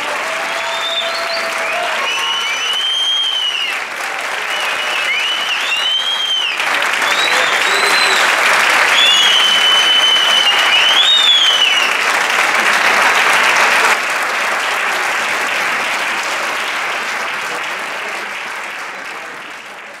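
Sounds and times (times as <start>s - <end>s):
audience applauding: 0.0s - 20.0s
high whistle: 0.6s - 3.8s, 4.5s - 11.9s.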